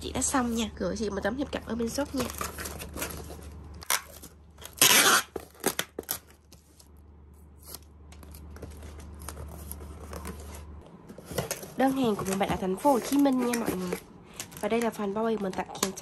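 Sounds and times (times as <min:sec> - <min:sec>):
packing tape ripping: 0:02.2 - 0:06.4.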